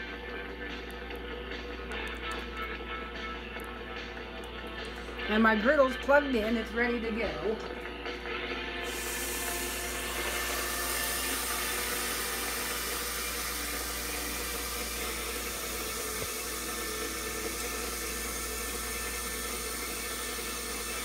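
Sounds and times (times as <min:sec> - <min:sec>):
patties sizzling on a grill: 0:08.9 - 0:21.0.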